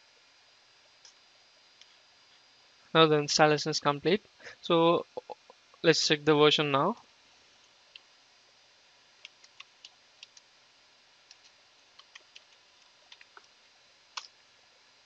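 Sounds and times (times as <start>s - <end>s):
computer keyboard typing: 11.3s - 13.5s.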